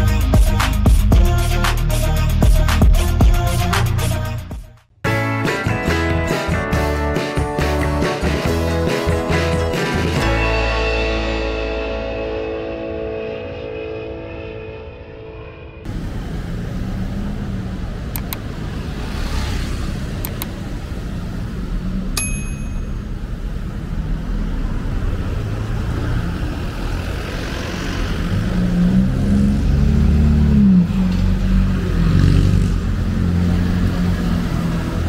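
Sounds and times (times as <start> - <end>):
cars and motorcycles driving past: 15.8 - 35.0
short bright ding: 22.2 - 23.0.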